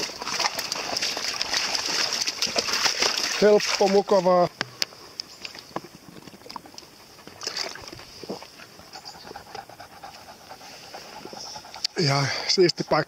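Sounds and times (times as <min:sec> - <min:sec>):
dogs panting: 0:05.9 - 0:13.0.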